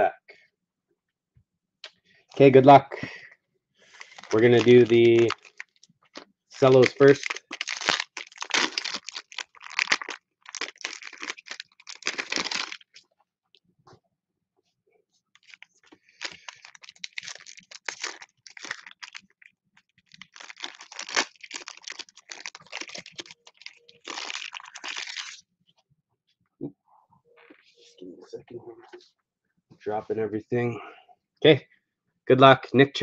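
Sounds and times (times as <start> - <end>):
foil wrappers crinkling and tearing: 3.9 - 13.0, 15.4 - 25.4.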